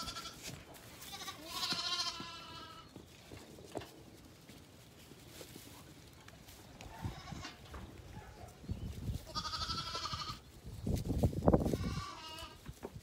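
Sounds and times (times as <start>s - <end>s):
lambs bleating: 0.0s - 2.9s, 9.2s - 10.4s, 11.7s - 12.7s.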